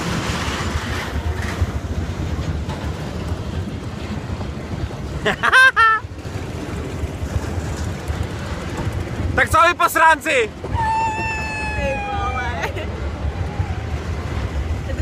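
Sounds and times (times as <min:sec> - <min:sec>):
roller coaster rumble: 0:00.0 - 0:15.0
wind buffeting microphone: 0:10.4 - 0:15.0.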